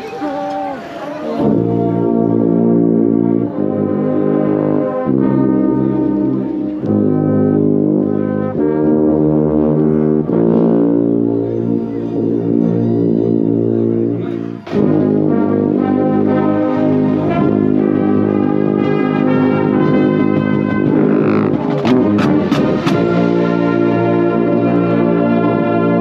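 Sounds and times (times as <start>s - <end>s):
low tuba notes: 0.0s - 26.0s
marching band brass chords: 0.0s - 26.0s.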